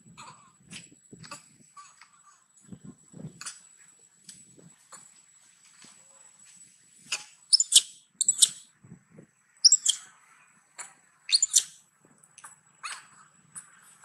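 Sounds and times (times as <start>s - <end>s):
young monkey squealing: 7.5s - 8.6s, 9.6s - 10.0s, 11.3s - 11.8s.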